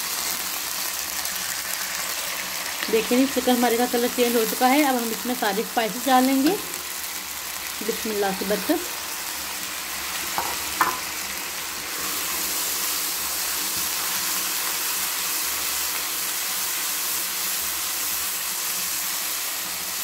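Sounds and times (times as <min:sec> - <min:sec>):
chicken sizzling in hot oil: 0:00.0 - 0:20.0
spatula tapping wok: 0:10.4 - 0:11.1.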